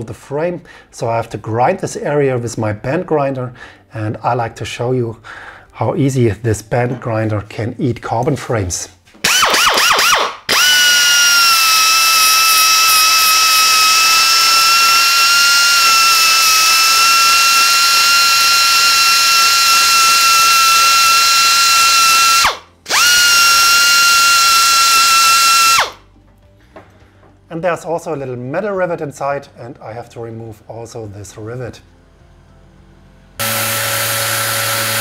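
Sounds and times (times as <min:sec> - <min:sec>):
air belt grinder whining: 0:09.3 - 0:26.0, 0:33.4 - 0:35.0.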